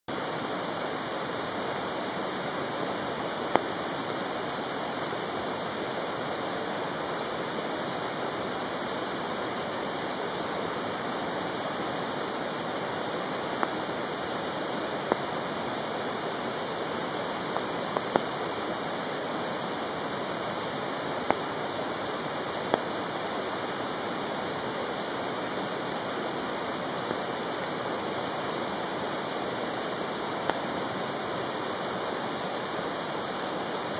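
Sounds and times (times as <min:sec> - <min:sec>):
stream rushing: 0:00.1 - 0:33.9.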